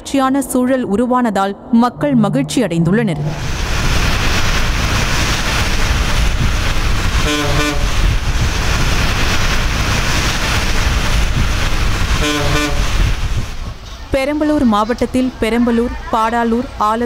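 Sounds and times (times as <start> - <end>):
heavy rain hissing on road: 3.4 - 14.6
vehicle horn double toot: 7.2 - 7.9, 12.2 - 12.9.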